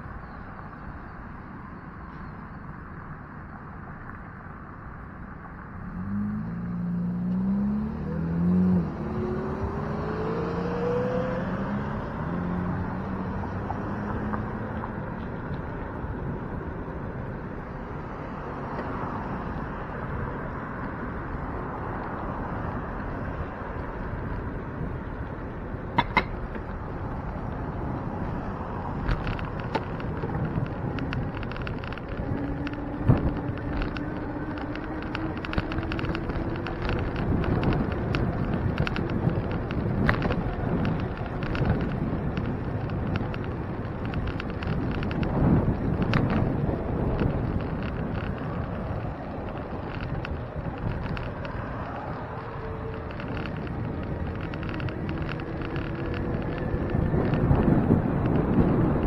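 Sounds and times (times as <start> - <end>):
wind and road noise: 0.0 - 59.0
vehicle accelerating past: 5.9 - 14.8.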